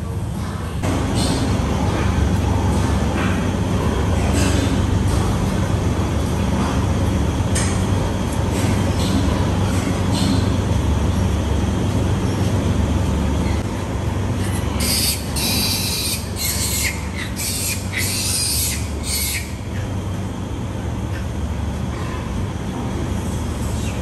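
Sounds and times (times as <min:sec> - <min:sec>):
piglets squealing: 0:14.4 - 0:19.7.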